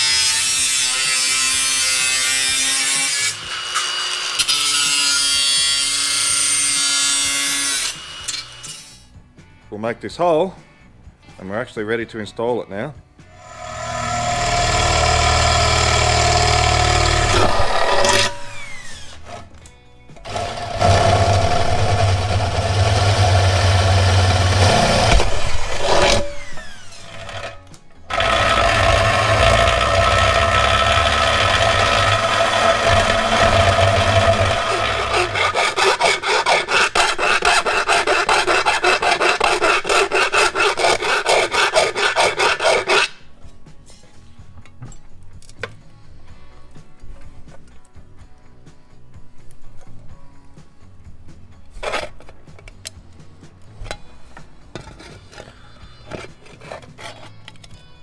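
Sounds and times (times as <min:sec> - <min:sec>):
power tool cutting sheet steel: 0:00.0 - 0:09.0, 0:13.4 - 0:19.5, 0:20.2 - 0:43.2.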